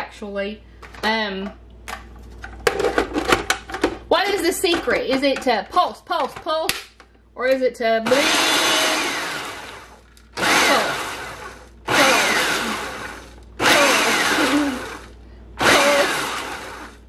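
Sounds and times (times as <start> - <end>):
food processor pulsing: 8.1 - 17.0.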